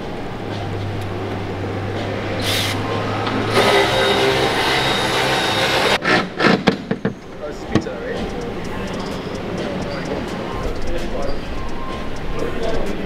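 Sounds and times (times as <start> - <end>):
machine hum: 0.0 - 6.0
loud multi-pitch whirring: 0.0 - 6.1.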